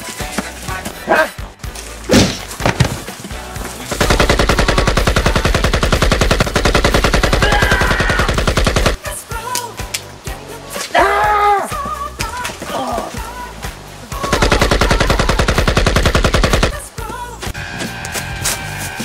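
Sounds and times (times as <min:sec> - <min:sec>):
machine-gun fire: 0:03.9 - 0:09.0, 0:14.2 - 0:16.8.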